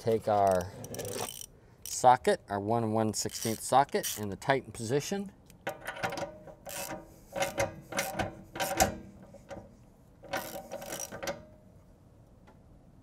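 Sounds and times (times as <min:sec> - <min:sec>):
socket ratchet clicking: 0:03.2 - 0:04.3, 0:05.5 - 0:09.0, 0:10.3 - 0:11.4.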